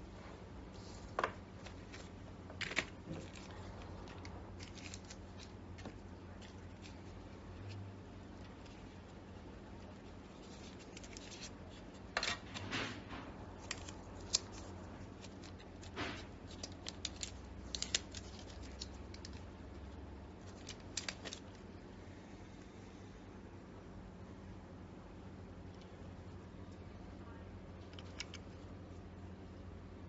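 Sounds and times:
faint low hum: 0.0s - 30.0s
plastic film peeling: 1.6s - 9.2s, 9.8s - 21.6s.

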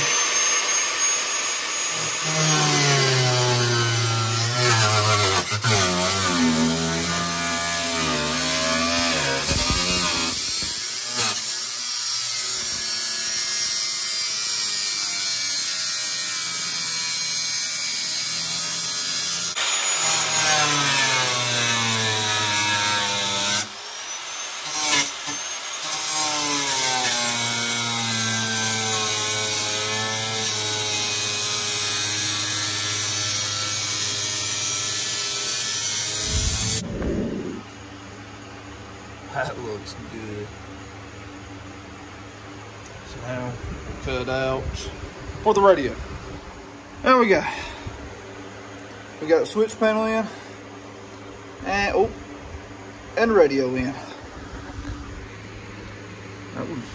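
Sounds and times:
grinder cutting metal: 0.0s - 37.6s.

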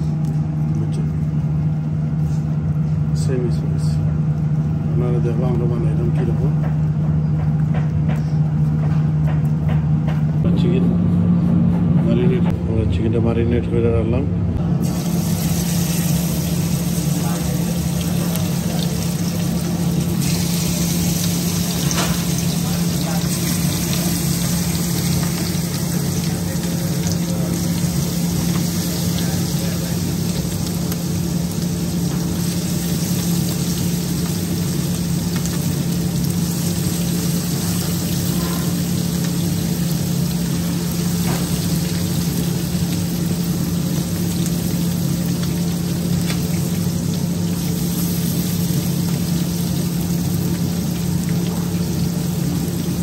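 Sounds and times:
steady low hum: 0.0s - 53.0s
chicken sizzling in hot oil: 14.8s - 53.0s.

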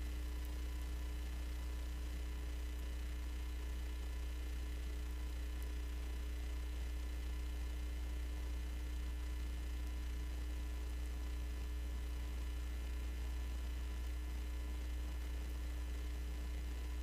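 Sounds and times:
faint thin steady tones: 0.0s - 17.0s
low electrical hum: 0.0s - 17.0s.

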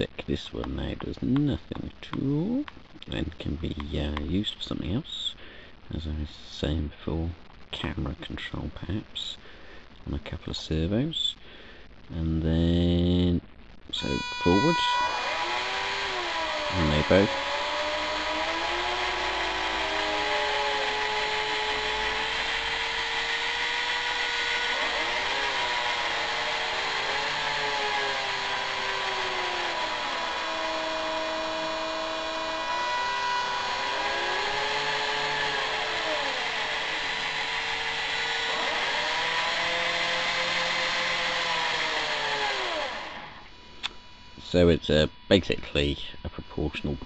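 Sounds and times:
cordless drill motors whining: 14.0s - 44.4s.

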